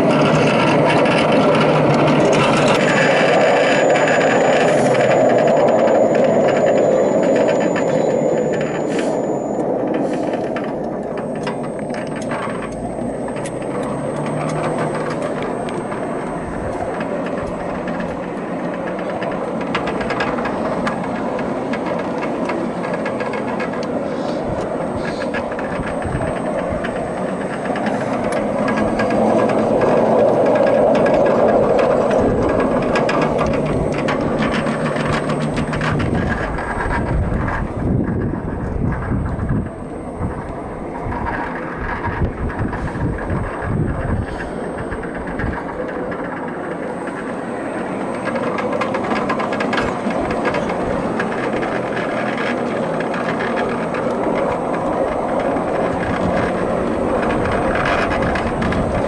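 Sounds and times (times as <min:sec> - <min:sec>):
sharp clicks: 0:00.0 - 0:38.2
model train rumbling on rails: 0:00.0 - 0:59.0.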